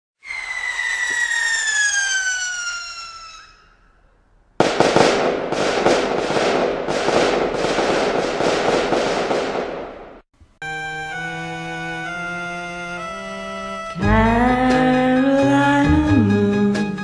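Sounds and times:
firework crackling bursts: 0.2s - 3.6s
firework bang: 0.2s - 3.7s
firework whistle falling: 0.2s - 3.9s
music: 10.6s - 17.0s.

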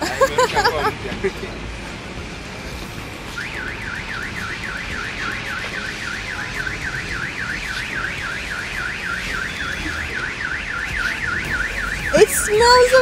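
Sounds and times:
car alarm siren wailing: 3.4s - 13.0s.

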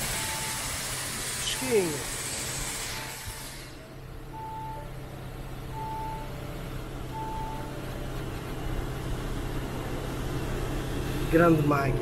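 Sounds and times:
steady low hum: 0.0s - 12.0s
electronic warning beeps: 0.1s - 0.8s, 1.4s - 2.2s, 4.3s - 5.0s, 5.7s - 7.9s.

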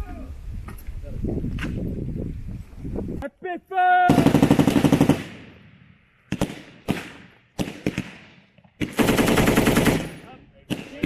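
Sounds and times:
machine gun firing: 4.1s - 5.6s, 6.3s - 11.0s
gunfire echo: 4.1s - 11.0s.

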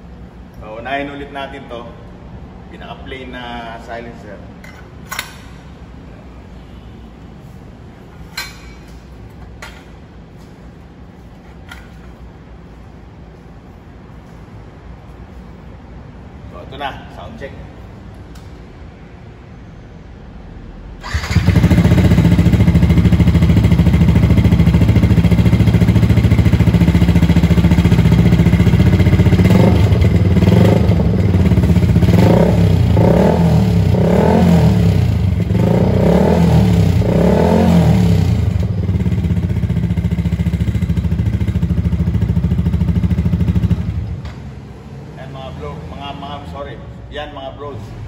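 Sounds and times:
motorcycle engine idling and revving: 21.0s - 45.2s.

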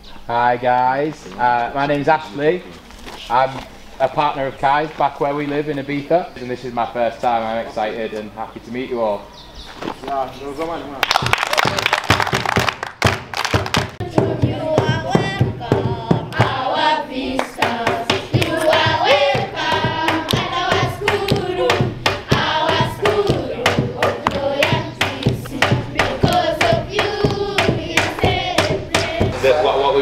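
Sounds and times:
hand claps keeping time: 11.0s - 16.6s, 17.3s - 29.4s
children singing together: 14.0s - 30.0s.

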